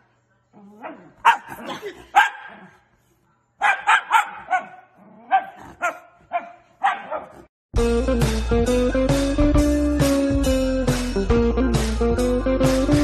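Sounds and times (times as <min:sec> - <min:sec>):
dog barking sharply: 0:01.2 - 0:01.6, 0:03.6 - 0:07.5.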